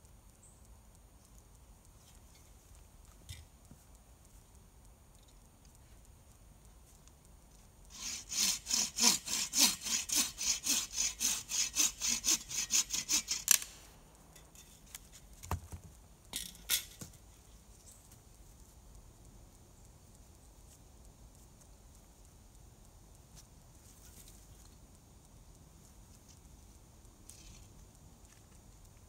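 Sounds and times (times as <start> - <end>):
hand saw cutting wood: 7.9 - 13.7.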